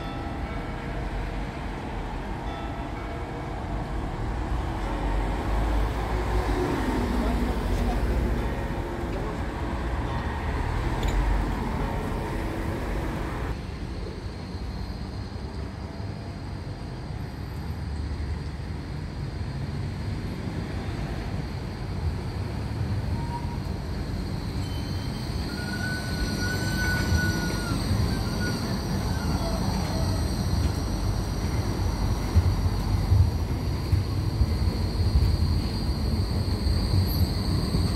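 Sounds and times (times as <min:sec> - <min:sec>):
tram rumbling: 0:00.0 - 0:37.9
tram wheels squealing: 0:00.0 - 0:37.9.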